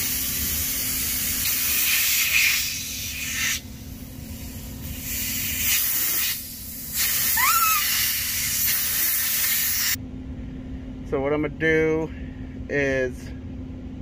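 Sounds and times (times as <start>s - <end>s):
rushing hiss of air: 4.8s - 10.0s
short rising squeak: 7.4s - 7.9s.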